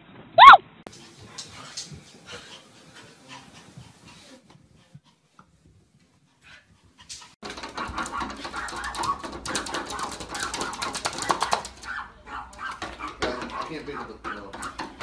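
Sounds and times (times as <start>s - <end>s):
dog making excited noises: 0.4s - 0.6s, 6.5s - 15.0s
paws tapping on glass door: 7.1s - 15.0s.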